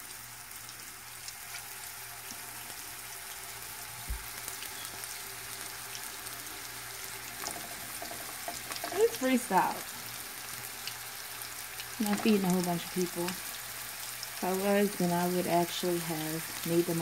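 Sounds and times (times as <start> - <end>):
meatballs sizzling in oil: 0.0 - 17.0.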